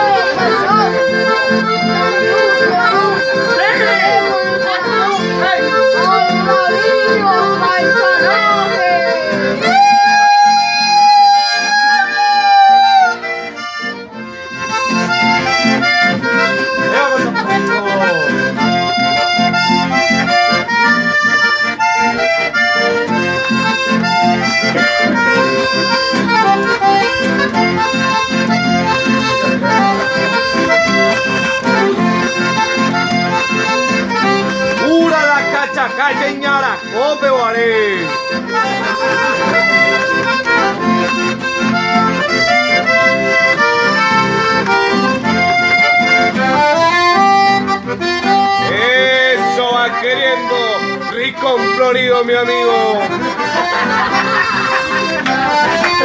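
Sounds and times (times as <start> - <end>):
button accordions playing: 0.0 - 56.0
nylon-string guitar strumming: 0.0 - 56.0.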